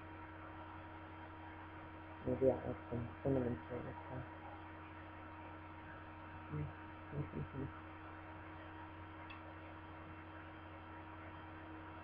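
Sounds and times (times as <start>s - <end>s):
electrical mains hum: 0.0s - 12.0s
low murmurs: 6.4s - 7.8s.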